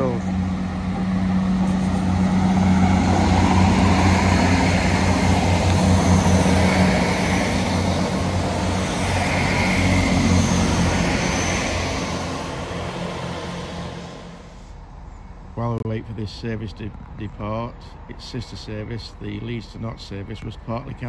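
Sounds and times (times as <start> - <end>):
train wheel and rail noise: 0.0 - 15.3
diesel engine hum: 0.0 - 21.0.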